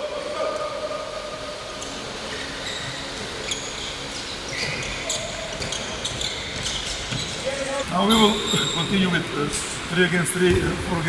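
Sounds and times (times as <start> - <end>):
sneakers squeaking on wooden floor: 1.8 - 9.2.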